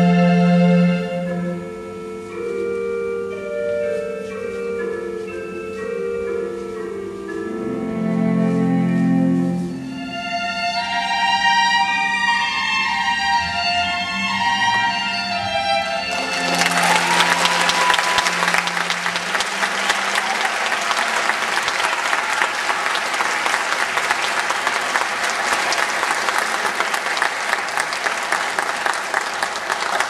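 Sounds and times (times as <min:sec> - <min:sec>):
string music: 0:00.0 - 0:25.4
audience applauding: 0:16.1 - 0:30.0.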